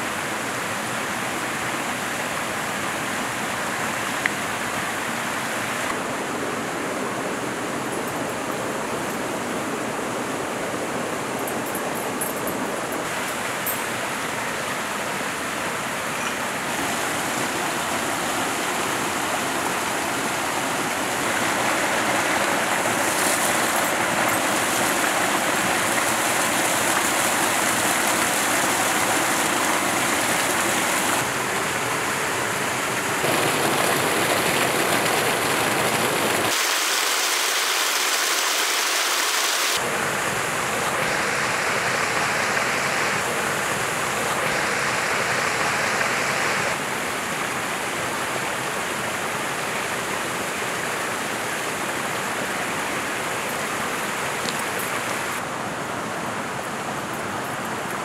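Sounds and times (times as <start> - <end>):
waterfall splashing in rocky stream: 13.1 - 40.9.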